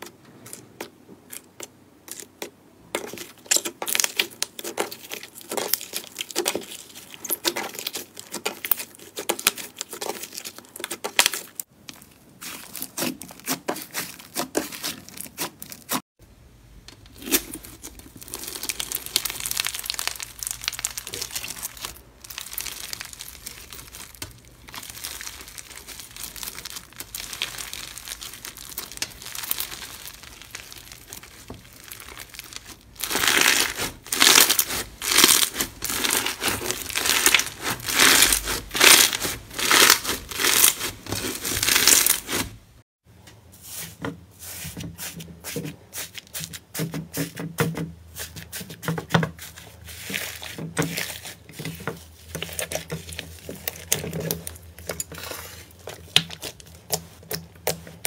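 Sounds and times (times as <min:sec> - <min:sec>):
slime kneading: 0:00.4 - 0:16.0, 0:17.0 - 0:42.8, 0:43.7 - 0:58.0
beaded slime crackling: 0:17.2 - 0:42.6, 0:49.9 - 0:58.0.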